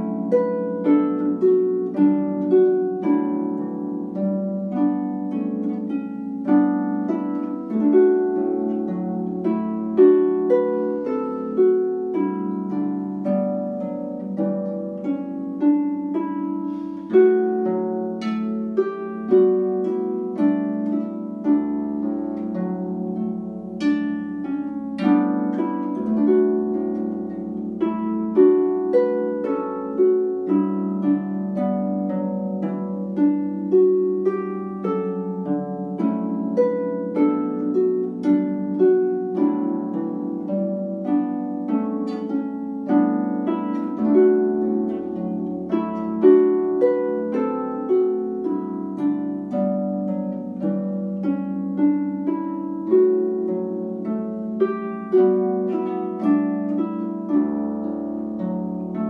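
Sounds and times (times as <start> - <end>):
harp playing: 0.0 - 59.0.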